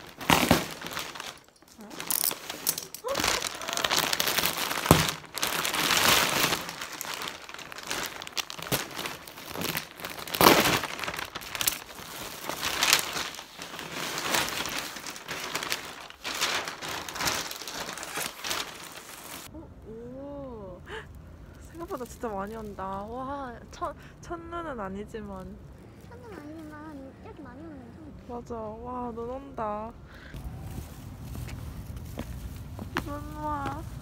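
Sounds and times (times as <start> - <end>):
plastic wrapping crinkling: 0.0 - 19.5, 20.9 - 23.8.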